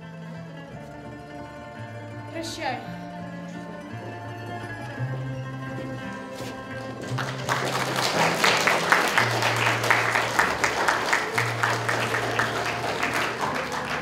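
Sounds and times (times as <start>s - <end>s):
background music with low notes: 0.0s - 14.0s
audience applauding: 7.0s - 14.0s.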